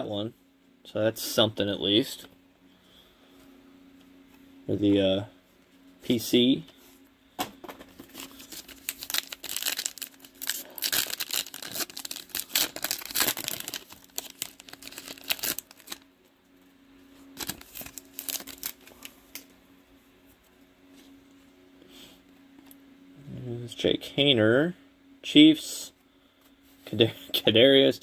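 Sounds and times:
plastic wrapper tearing and crinkling: 8.0 - 16.0, 17.4 - 19.4.

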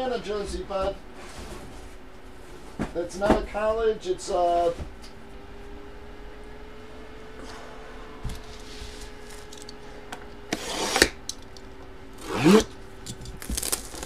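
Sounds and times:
cardboard box scraping on table: 8.4 - 9.4.

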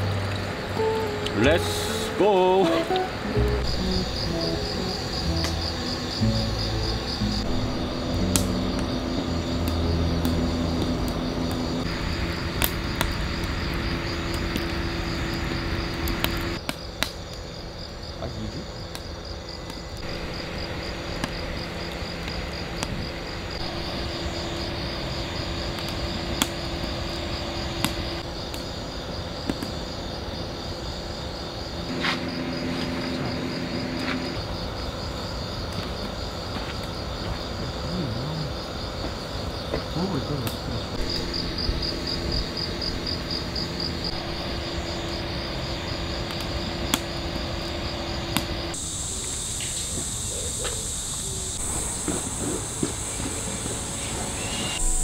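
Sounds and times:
low hum: 0.0 - 16.6, 20.0 - 28.5, 40.8 - 48.9
crickets chirping: 0.0 - 55.0.

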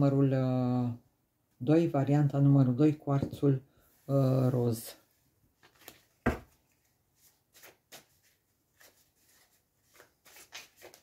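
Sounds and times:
cards shuffled by hand: 5.6 - 11.0.

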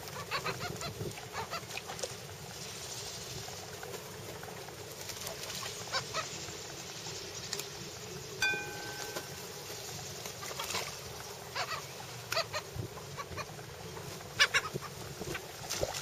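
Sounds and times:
gulls calling: 8.4 - 15.6.

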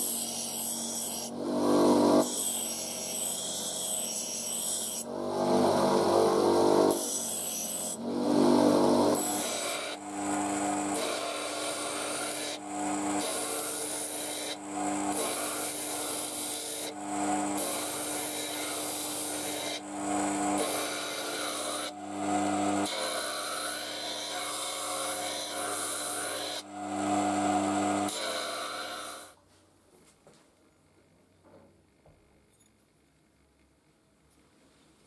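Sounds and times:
knife grinding on disc grinder: 0.0 - 29.3
grinder motor hum: 1.3 - 3.7, 5.0 - 29.3.

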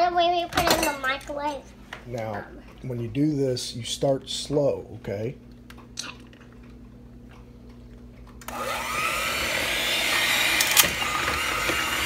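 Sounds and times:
electric hand mixer running: 8.4 - 12.0.

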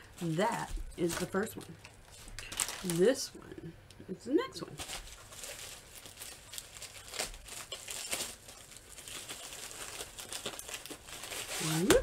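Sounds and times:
packaging crinkling and rustling: 0.0 - 3.2, 4.7 - 12.0.

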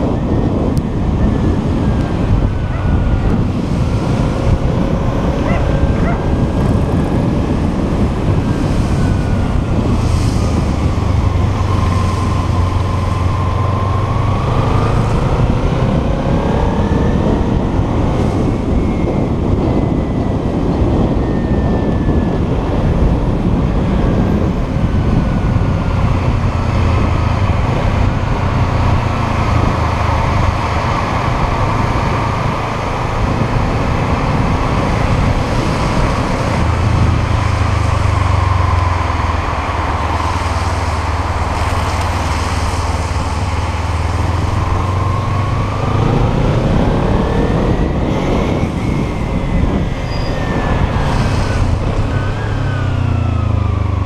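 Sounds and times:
motorcycle engine revving: 0.0 - 19.1, 23.6 - 54.0
wind noise: 0.0 - 54.0
tyre noise on wet road: 22.9 - 54.0.

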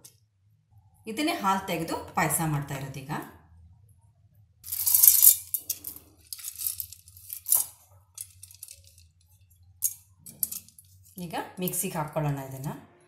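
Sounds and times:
wet seeds rattling in steel jar: 4.6 - 9.2.

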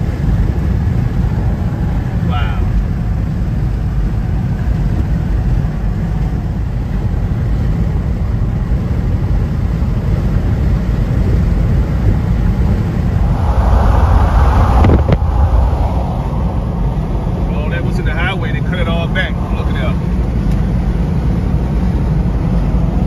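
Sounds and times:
rushing noise: 12.4 - 20.4.

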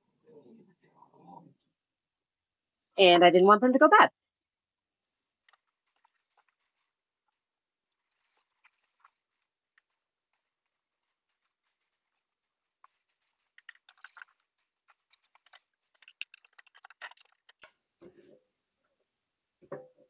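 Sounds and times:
cucumbers rustling in metal strainer: 7.9 - 17.7.

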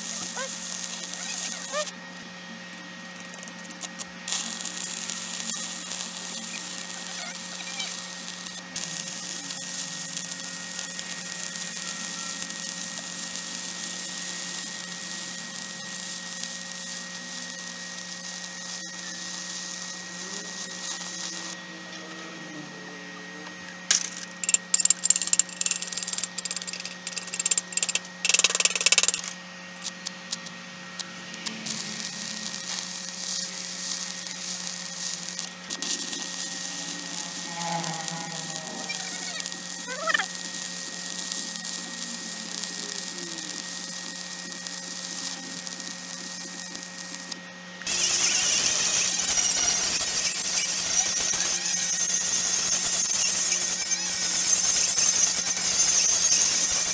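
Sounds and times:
sharp crackles and pops: 0.0 - 1.9, 3.0 - 20.0, 23.9 - 56.9
welding arc crackling hiss: 0.0 - 21.6, 23.9 - 56.9
steady hum: 0.0 - 55.5.

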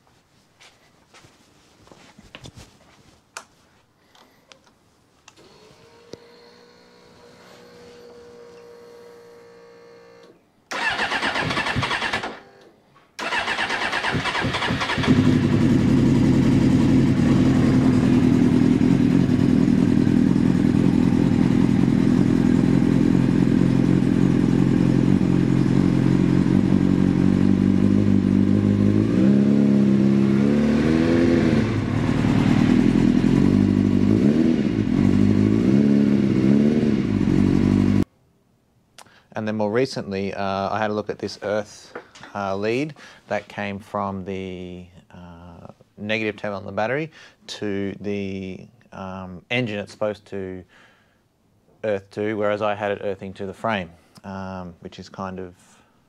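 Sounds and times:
motorcycle engine starter cranking: 10.7 - 12.6, 13.2 - 15.6
motorcycle engine idling and revving: 13.3 - 38.0.

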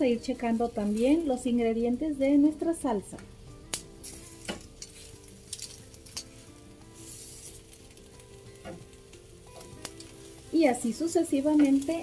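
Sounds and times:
food sizzling: 0.0 - 12.0
metal tongs clicking on tray: 3.7 - 6.4, 9.6 - 10.1.

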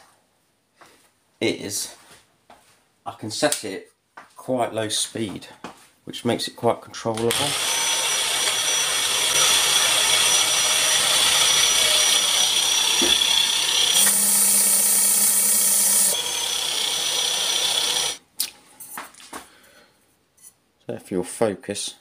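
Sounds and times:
electric drill sanding metal: 7.3 - 18.2.

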